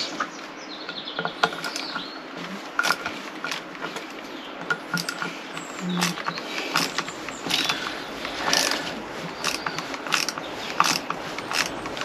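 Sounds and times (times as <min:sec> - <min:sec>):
hand tool clicking: 0:02.8 - 0:12.0.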